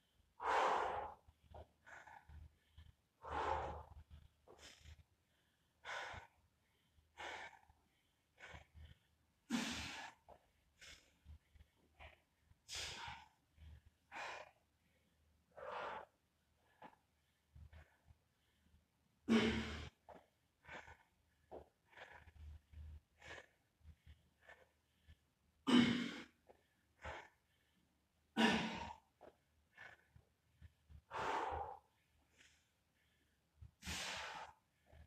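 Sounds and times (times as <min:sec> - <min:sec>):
man breathing hard: 0:00.0 - 0:35.0.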